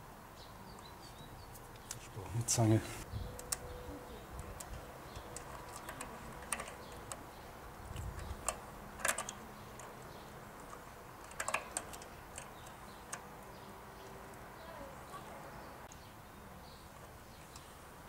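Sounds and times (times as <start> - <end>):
small metallic clicks and taps: 4.4 - 7.3, 7.9 - 13.4.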